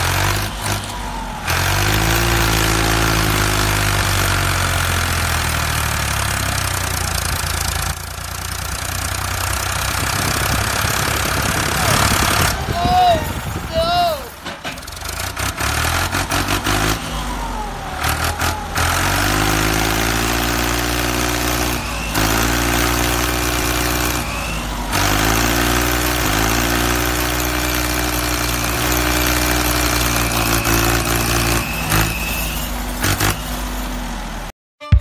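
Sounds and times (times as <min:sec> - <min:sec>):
vehicle engine running: 0:00.0 - 0:34.5.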